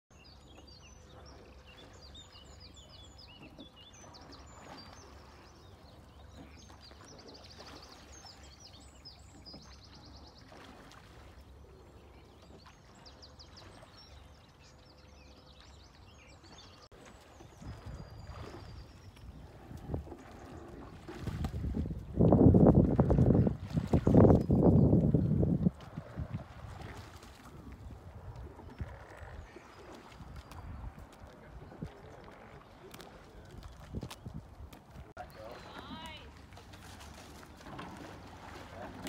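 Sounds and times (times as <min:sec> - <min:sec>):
wind rumble on microphone: 0:17.3 - 0:35.2.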